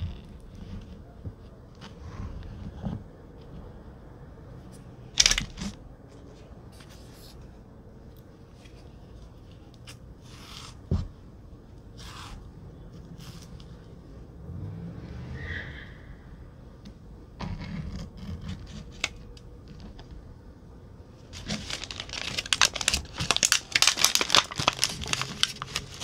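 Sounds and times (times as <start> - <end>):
food handling on table: 21.3 - 26.0.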